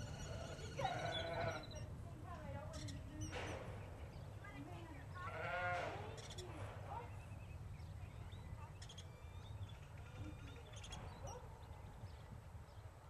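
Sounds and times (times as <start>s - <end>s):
faint bird chirps: 0.0s - 1.9s, 6.1s - 12.8s.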